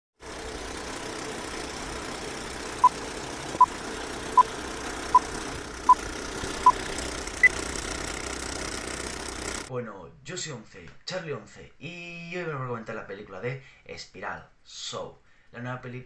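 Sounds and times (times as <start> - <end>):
film projector whirr: 0.2 - 9.7.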